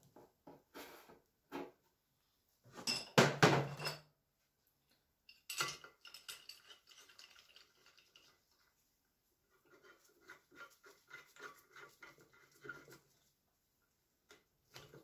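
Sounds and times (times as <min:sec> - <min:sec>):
metal tools clattering: 0:02.8 - 0:04.1, 0:05.3 - 0:07.5.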